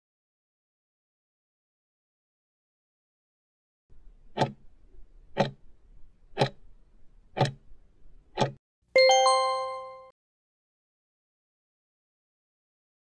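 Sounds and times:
clock ticks: 4.2 - 4.7, 5.3 - 5.6, 6.3 - 6.7, 7.3 - 7.7, 8.3 - 8.6
two-note chime: 9.0 - 10.1.

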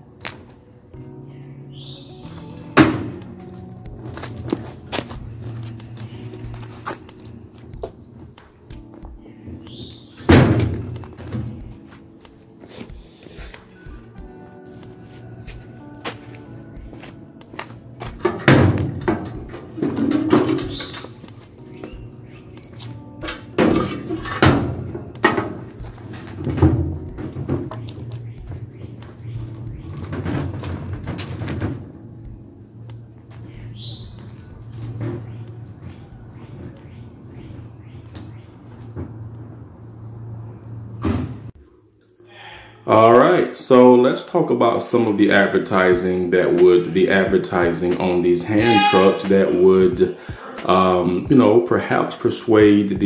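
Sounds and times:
background music: 0.0 - 41.0, 41.7 - 53.0
loud thump: 2.8 - 3.3
hand truck clunking and rattling: 2.8 - 12.0, 16.0 - 40.1, 45.9 - 51.5
knocks and clatter: 18.0 - 21.4, 23.2 - 32.0.

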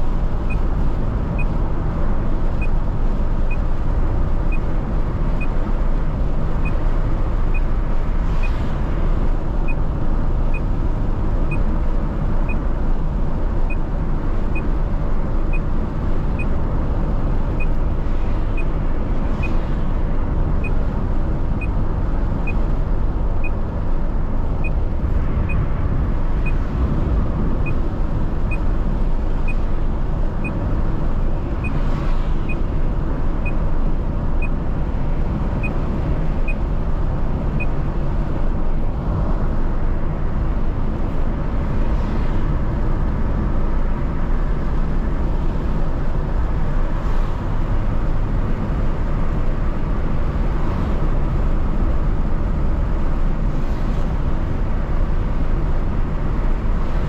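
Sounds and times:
car road and engine noise: 0.0 - 57.0
vehicles rushing past: 0.0 - 57.0.

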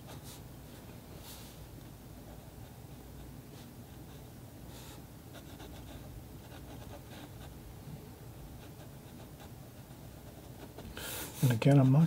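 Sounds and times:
pencil scratching on paper: 5.3 - 7.6.

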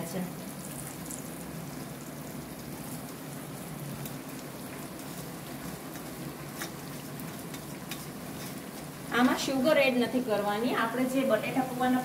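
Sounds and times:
oil sizzling in a frying pan: 0.0 - 12.0.

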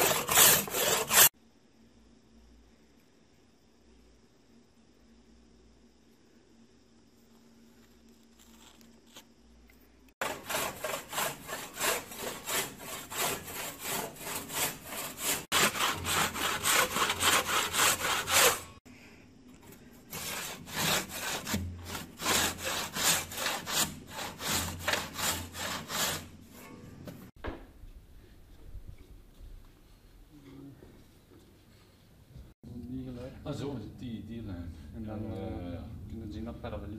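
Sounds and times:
hand saw cutting wood: 0.0 - 1.3, 10.2 - 18.8, 20.1 - 26.8.

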